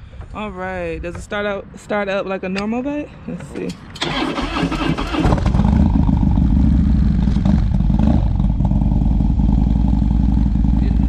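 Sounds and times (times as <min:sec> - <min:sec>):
motorcycle engine idling: 0:04.8 - 0:11.0.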